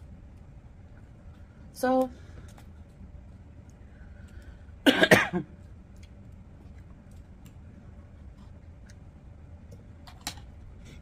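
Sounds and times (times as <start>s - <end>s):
person coughing: 4.8s - 5.5s.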